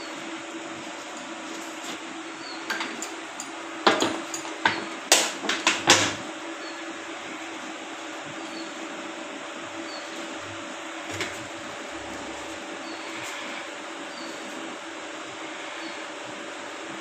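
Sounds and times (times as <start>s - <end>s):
steady background hum: 0.0s - 17.0s.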